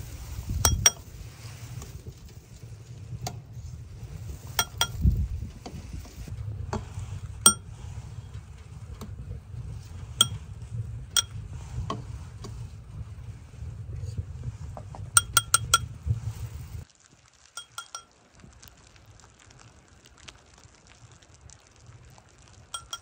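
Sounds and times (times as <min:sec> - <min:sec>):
low steady rumble: 0:00.0 - 0:16.9, 0:19.0 - 0:23.0
cookware clinking: 0:00.7 - 0:01.0, 0:04.6 - 0:05.0, 0:15.2 - 0:15.9, 0:17.6 - 0:18.1, 0:22.8 - 0:23.0.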